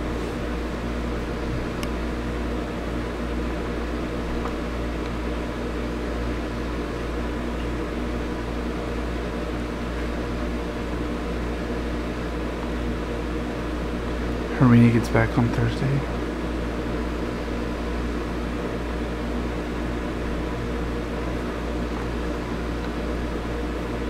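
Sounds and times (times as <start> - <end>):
steady low hum with hiss: 0.0 - 24.0.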